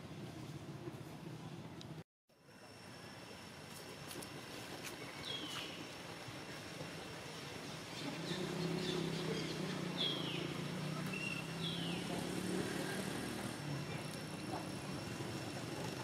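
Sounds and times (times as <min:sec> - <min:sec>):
distant engine hum: 0:00.0 - 0:16.0.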